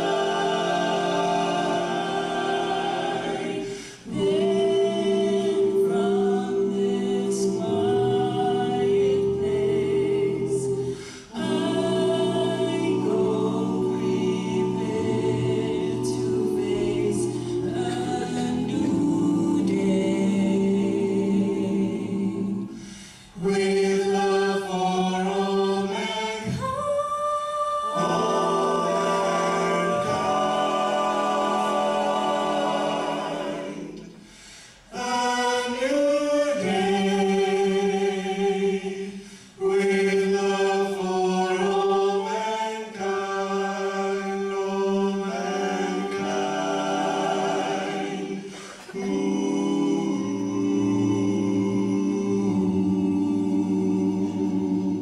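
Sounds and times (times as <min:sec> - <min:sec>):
a cappella group singing harmony: 0:00.0 - 0:55.0.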